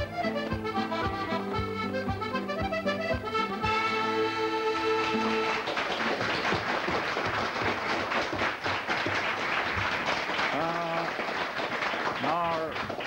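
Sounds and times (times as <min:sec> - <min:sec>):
accordion chord: 0:00.0 - 0:05.9
audience applause: 0:04.7 - 0:13.0.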